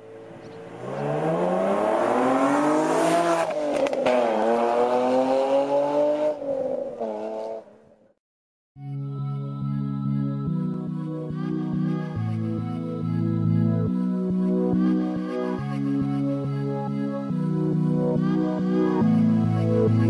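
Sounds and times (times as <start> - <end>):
car engine accelerating hard: 0.2 - 7.7
music: 8.8 - 20.0.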